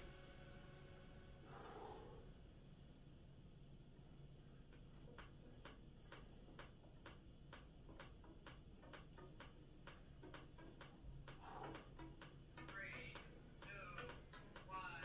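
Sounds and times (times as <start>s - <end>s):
faint regular ticking: 3.1s - 15.0s.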